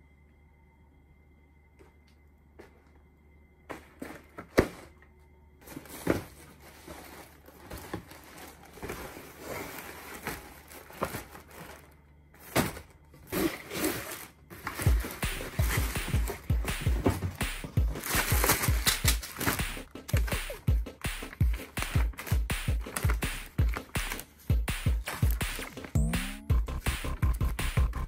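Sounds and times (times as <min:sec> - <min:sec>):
plastic bags crinkling: 0:05.6 - 0:17.2, 0:17.8 - 0:20.2
cardboard box knocking and scraping: 0:14.8 - 0:18.9
low thumps: 0:25.4 - 0:28.0.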